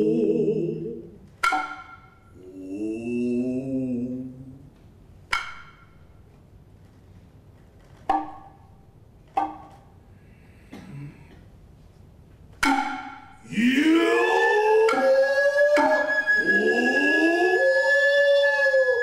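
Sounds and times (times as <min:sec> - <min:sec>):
hand drum strikes: 0:01.4 - 0:02.1, 0:12.6 - 0:13.4.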